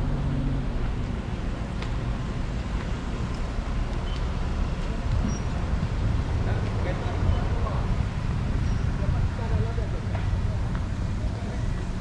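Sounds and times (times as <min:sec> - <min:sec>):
faint outdoor background noise: 0:00.0 - 0:12.0
wind buffeting microphone: 0:04.6 - 0:12.0.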